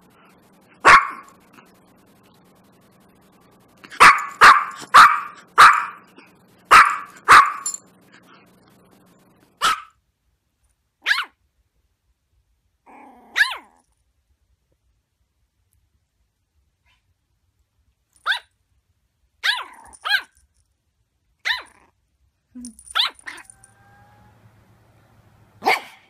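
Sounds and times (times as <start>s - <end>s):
dog yipping: 0.8s - 1.3s, 4.0s - 6.0s, 6.7s - 7.8s, 9.6s - 9.9s, 11.0s - 11.4s, 13.3s - 13.8s, 18.2s - 18.5s, 19.4s - 20.3s, 21.4s - 21.9s, 22.8s - 24.8s, 25.6s - 26.0s
small dog barking: 0.8s - 1.4s, 3.9s - 6.1s, 6.7s - 7.7s, 9.6s - 10.0s, 11.0s - 11.4s, 13.2s - 13.8s, 18.2s - 18.5s, 19.4s - 20.3s, 21.4s - 21.9s, 22.8s - 26.0s.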